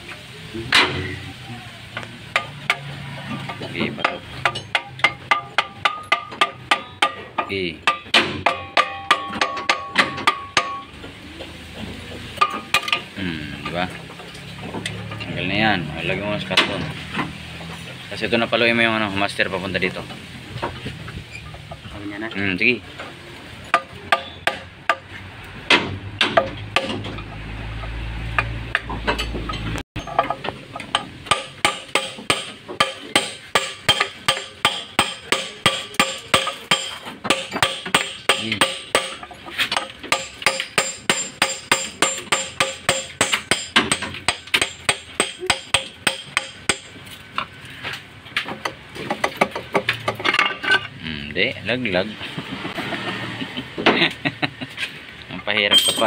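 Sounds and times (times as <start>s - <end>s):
hammer striking steel punch: 4.0s - 10.9s, 30.0s - 46.9s.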